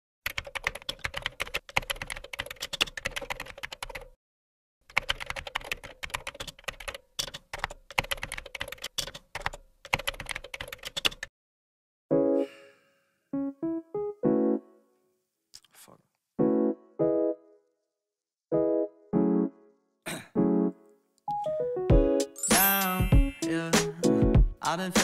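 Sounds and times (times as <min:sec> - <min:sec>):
computer keyboard typing: 0:00.2 - 0:04.2, 0:04.9 - 0:11.3.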